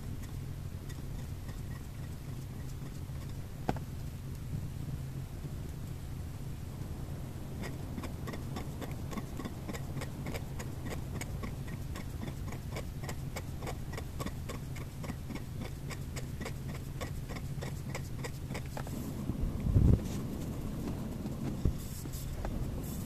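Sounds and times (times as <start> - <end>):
low steady hum: 0.0 - 23.0
steady ticking: 7.5 - 18.7.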